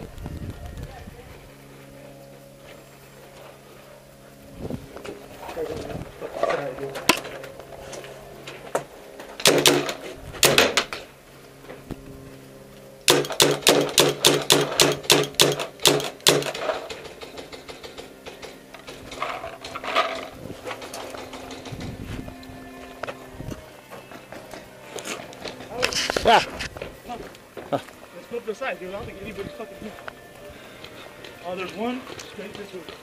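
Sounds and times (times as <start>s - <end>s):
paintball marker shots: 9.4s - 11.0s, 13.1s - 17.5s.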